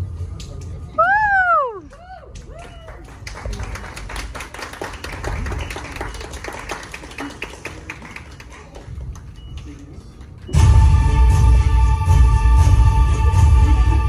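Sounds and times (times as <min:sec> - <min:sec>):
crowd clapping: 0:01.6 - 0:10.6.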